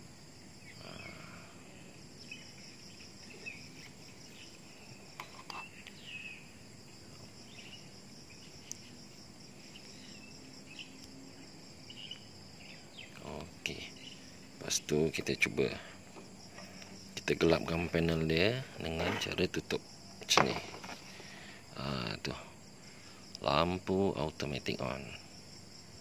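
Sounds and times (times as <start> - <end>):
crickets trilling: 0.0 - 26.0
bird chirps: 2.2 - 6.5, 9.6 - 14.3.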